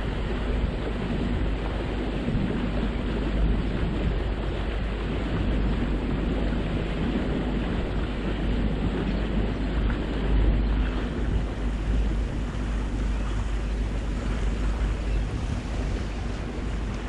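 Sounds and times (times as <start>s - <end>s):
water rushing along boat hull: 0.0s - 17.0s
wind buffeting microphone: 0.0s - 17.0s.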